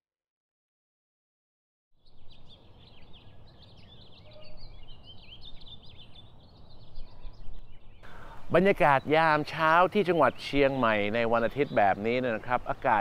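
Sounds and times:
small birds chirping: 2.0s - 13.0s.

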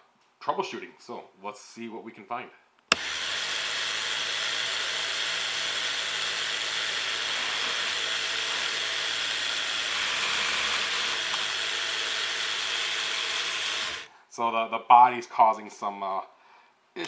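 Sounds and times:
slot car motors whirring: 2.9s - 14.1s.

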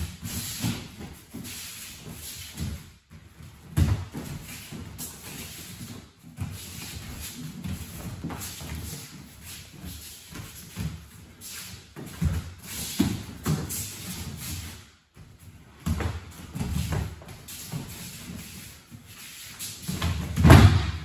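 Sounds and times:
bare feet stamping on mats: 2.3s - 11.2s, 19.8s - 21.0s.

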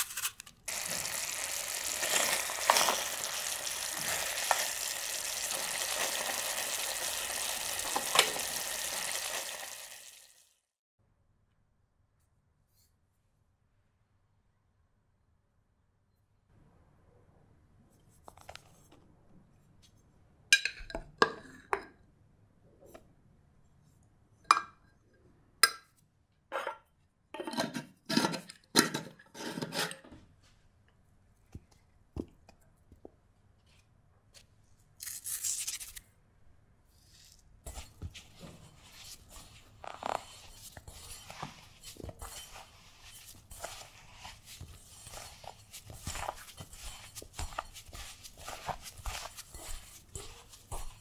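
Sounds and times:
flour going into bowl: 37.6s - 51.0s
fingers rubbing butter into flour: 37.7s - 51.0s.

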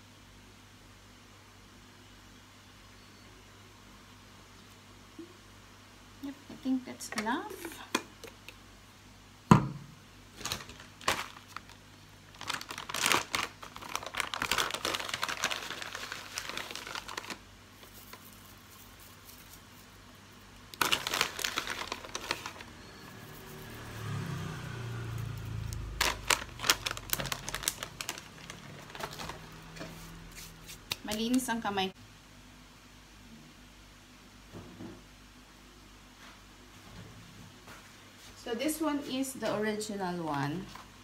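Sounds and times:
dry seaweed crumbled by hand: 10.4s - 19.9s, 20.7s - 22.8s, 25.1s - 29.8s.

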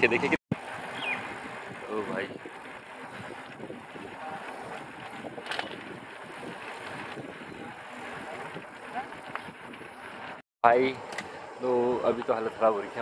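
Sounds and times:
wind on microphone: 0.5s - 10.4s.

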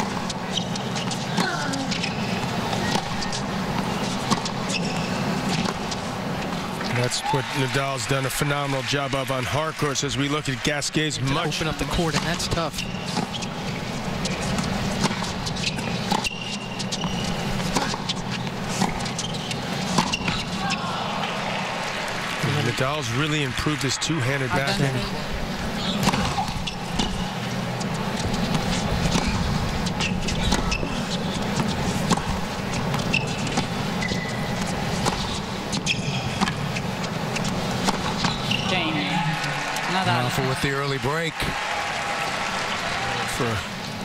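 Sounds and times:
shoe squeak: 0.0s - 6.0s, 12.1s - 21.0s, 25.8s - 39.0s
racket striking tennis ball: 14.3s - 20.6s, 25.9s - 27.2s, 27.9s - 38.5s
racquet striking tennis ball: 14.3s - 20.6s, 25.9s - 27.2s
crowd hum: 16.7s - 44.0s.

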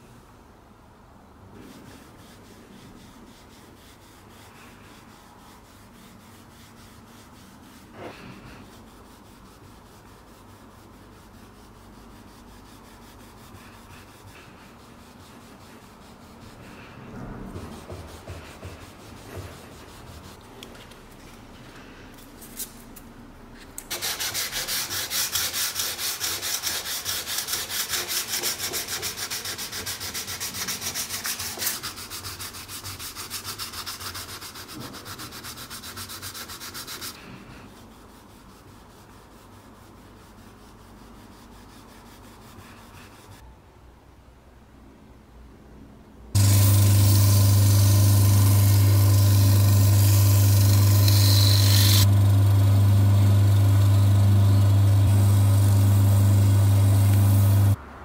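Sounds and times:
sandpaper scratching on wood: 1.7s - 16.9s, 23.9s - 43.4s, 46.4s - 52.4s
steel wool rubbing wood: 46.4s - 57.8s.

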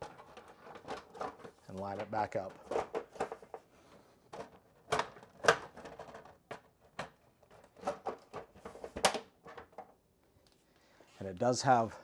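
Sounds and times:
plastic clicks and knocks: 4.3s - 10.0s.

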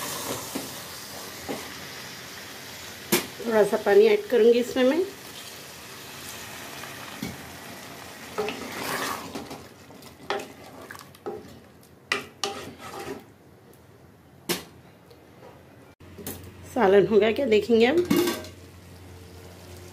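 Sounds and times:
water pouring into pot: 10.6s - 11.2s
spoon scraping metal pot: 12.4s - 13.3s.

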